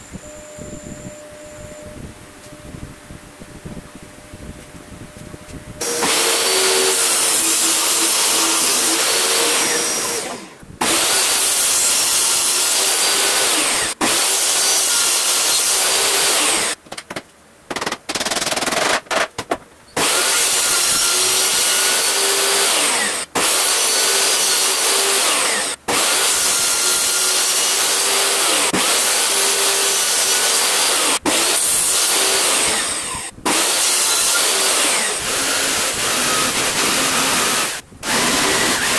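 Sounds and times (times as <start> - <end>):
table saw cutting wood: 5.8 - 16.8, 20.0 - 38.9.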